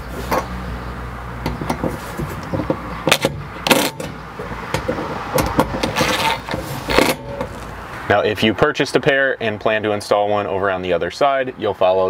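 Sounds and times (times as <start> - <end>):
sharp clicks and knocks: 1.4 - 7.7.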